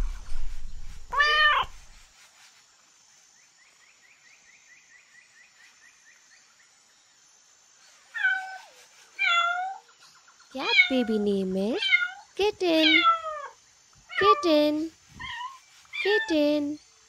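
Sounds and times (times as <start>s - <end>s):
cat meowing: 1.1s - 1.7s, 12.8s - 14.4s.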